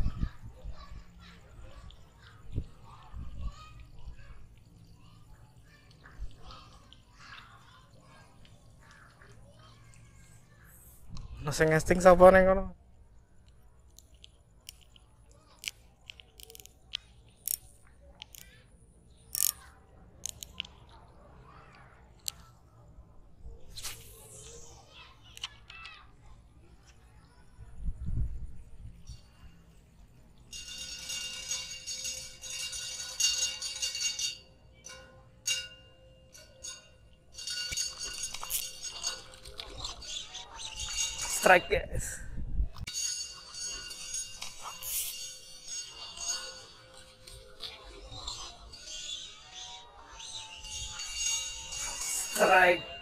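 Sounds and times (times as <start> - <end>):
fishing reel clicks and taps: 13.5 - 18.5, 19.3 - 19.6, 20.2 - 20.8
fishing reel metallic whirring: 15.6 - 18.6, 19.3 - 20.6, 30.4 - 42.2, 42.8 - 53.0.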